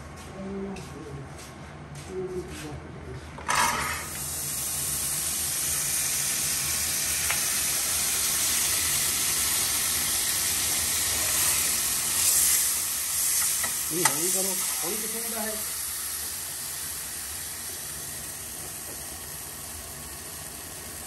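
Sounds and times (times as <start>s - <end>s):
chicken frying sizzle: 4.0s - 21.0s
person speaking: 13.9s - 15.8s.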